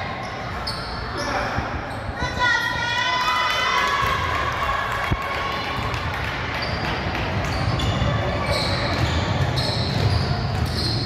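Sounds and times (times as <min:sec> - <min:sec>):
sneakers squeaking on floor: 0:00.1 - 0:02.2, 0:06.5 - 0:11.0
basketball bouncing: 0:08.8 - 0:11.0.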